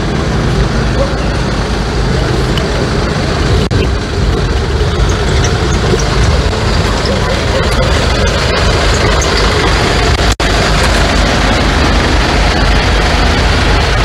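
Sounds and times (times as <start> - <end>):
street noise: 0.0 - 14.0
vehicle engine running: 0.0 - 14.0.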